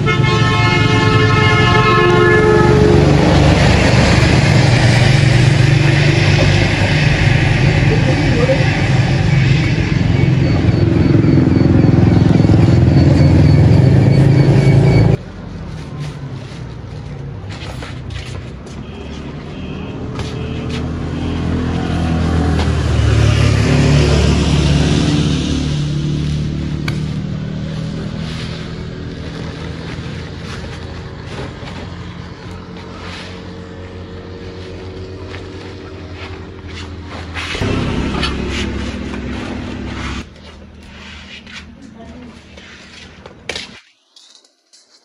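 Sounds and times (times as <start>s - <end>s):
vehicle passing: 0.7s - 43.2s
vehicle engine running: 20.3s - 43.1s.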